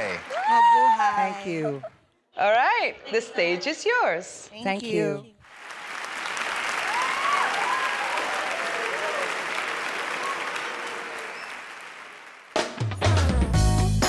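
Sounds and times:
audience applauding and cheering: 0:00.0 - 0:01.9, 0:05.4 - 0:13.2
backing music with a beat: 0:12.6 - 0:14.0.

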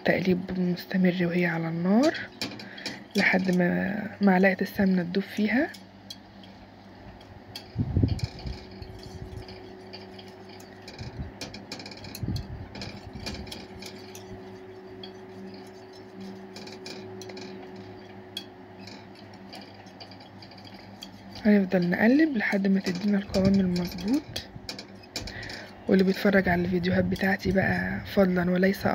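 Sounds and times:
steady low hum: 0:00.0 - 0:28.9
whisk scraping a saucepan: 0:04.8 - 0:28.9.

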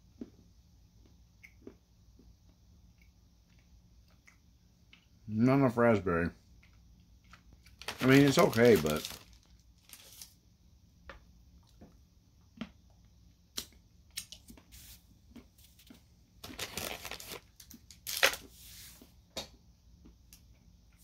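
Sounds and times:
chewing and mouth sounds: 0:01.0 - 0:05.2.

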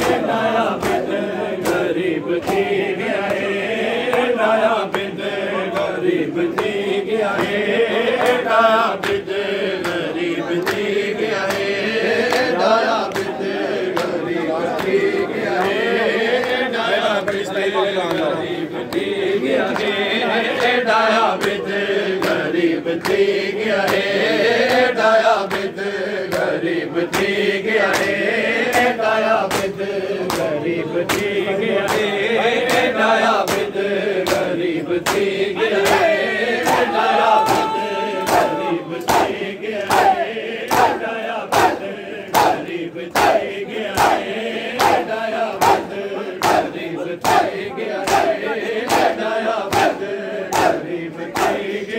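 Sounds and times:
hands slapping bare chests: 0:00.0 - 0:04.3, 0:22.2 - 0:24.1, 0:24.7 - 0:51.7
men chanting together: 0:00.0 - 0:51.9.

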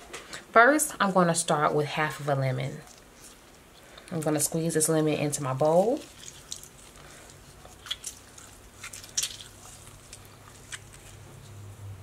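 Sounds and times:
faint low hum: 0:00.0 - 0:12.0
lemon squishing and dripping: 0:05.4 - 0:11.2.

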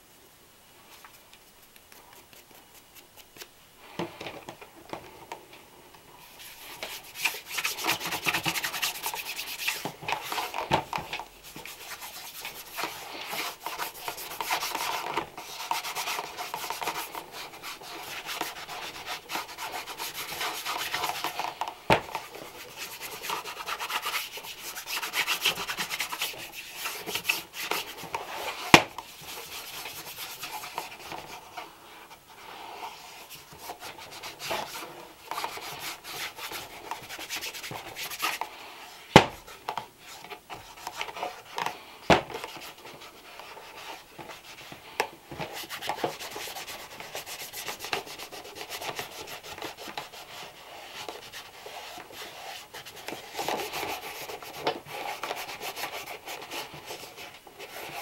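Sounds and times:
brush scrubbing leather shoe: 0:01.1 - 0:03.5, 0:06.2 - 0:31.5, 0:32.8 - 0:38.4, 0:45.4 - 0:58.0.

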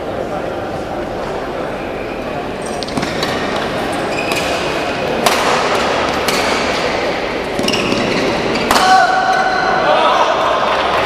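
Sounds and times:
large hall background noise: 0:00.0 - 0:11.0
racquets hitting shuttlecock: 0:02.7 - 0:09.5.

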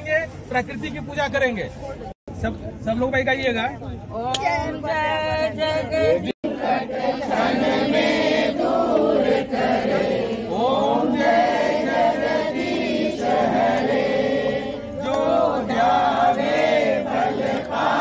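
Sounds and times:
women singing a hymn: 0:05.0 - 0:18.0.

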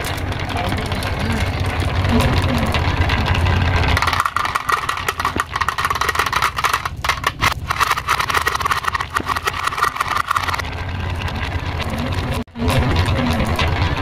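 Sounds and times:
toy motor whirring: 0:03.4 - 0:10.6
marbles clacking on wooden track: 0:03.9 - 0:10.6.

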